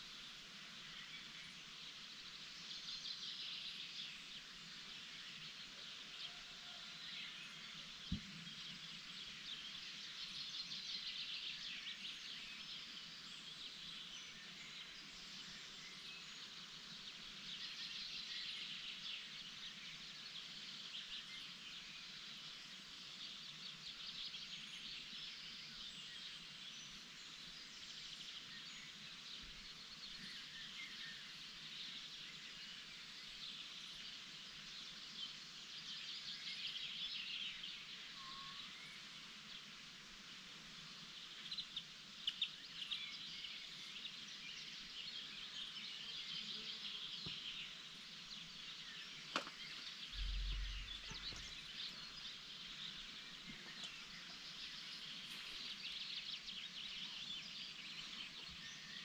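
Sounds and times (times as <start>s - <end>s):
small birds chirping: 7.2s - 59.0s
faint low hum: 49.6s - 55.3s.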